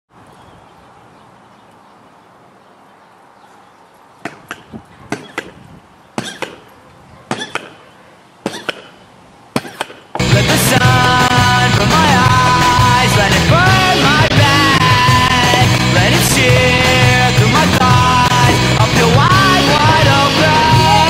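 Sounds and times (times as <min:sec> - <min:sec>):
pogo stick bouncing on ground: 0:04.2 - 0:06.7, 0:07.3 - 0:07.8, 0:08.4 - 0:09.0, 0:09.6 - 0:12.6, 0:14.3 - 0:17.2, 0:17.8 - 0:20.2.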